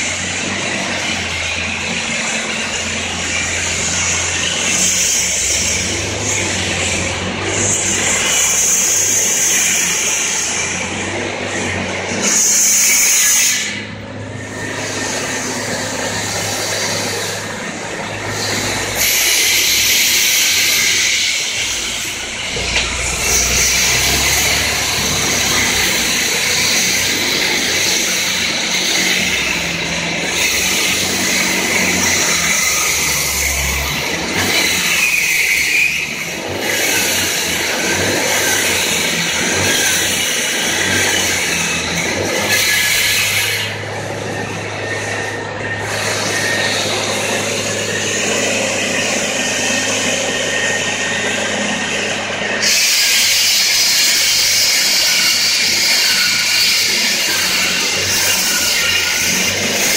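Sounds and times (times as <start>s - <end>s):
traffic passing: 0.0s - 54.2s
concrete saw whining: 0.0s - 59.9s
heavy vehicle low rumble: 13.7s - 35.0s, 40.3s - 52.6s.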